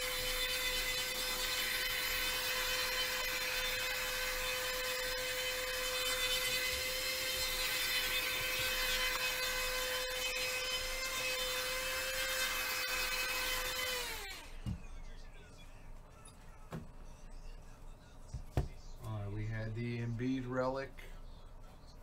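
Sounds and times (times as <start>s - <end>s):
electric motor whining: 0.0s - 14.8s.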